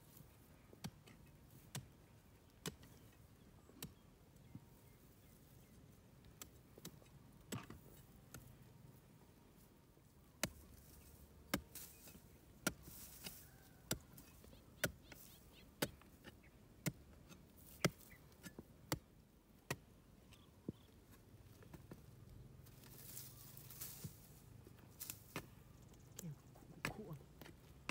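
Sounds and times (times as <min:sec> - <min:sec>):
digging tool chopping dry ground: 0:00.8 - 0:04.0, 0:06.2 - 0:08.6, 0:10.3 - 0:20.9, 0:22.7 - 0:27.9.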